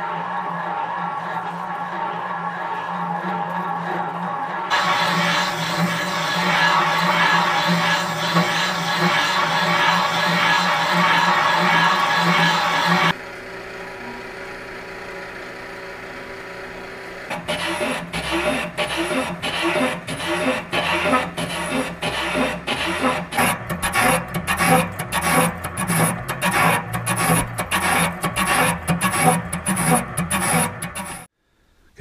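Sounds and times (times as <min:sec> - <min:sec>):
electric motor humming: 0:04.7 - 0:31.3
fly cutter scraping chatter: 0:17.3 - 0:31.3.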